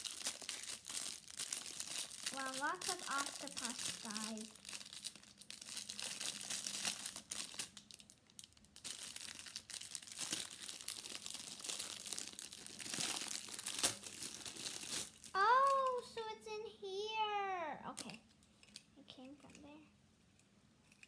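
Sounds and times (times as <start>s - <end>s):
plastic bag crinkling: 0.0s - 16.1s.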